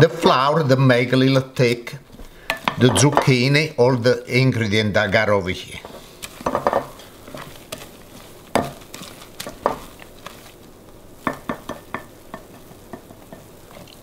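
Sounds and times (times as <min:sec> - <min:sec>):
spoon stirring wet batter: 0:05.7 - 0:14.0.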